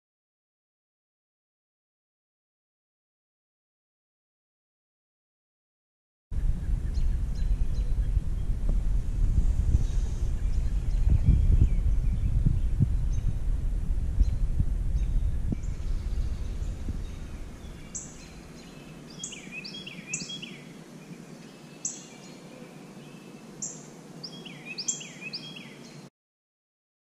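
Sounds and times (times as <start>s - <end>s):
low rumble: 6.3s - 19.2s
songbird calling in high notes: 15.6s - 26.0s.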